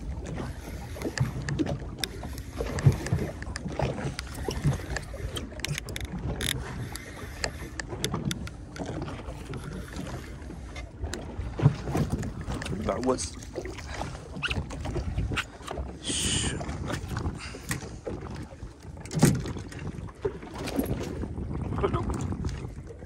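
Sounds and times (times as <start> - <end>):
water splashing against boat hull: 0.0 - 23.0
wind on microphone: 0.0 - 23.0
fishing reel clicking: 1.0 - 9.0.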